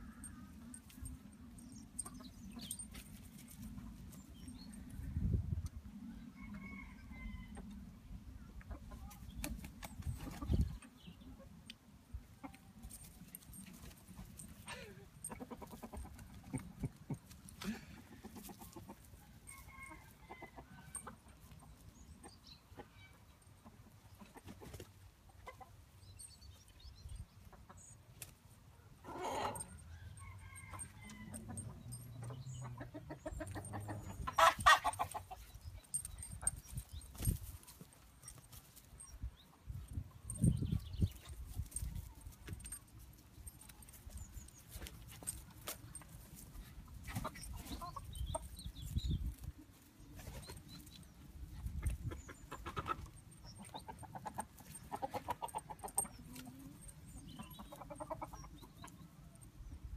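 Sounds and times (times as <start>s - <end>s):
chickens clucking: 1.8s - 4.2s, 8.5s - 11.6s, 12.2s - 25.9s, 27.3s - 28.3s, 29.0s - 29.8s, 30.4s - 42.8s, 43.6s - 59.2s
chicken calls: 29.0s - 37.4s, 47.0s - 50.6s, 51.6s - 59.0s.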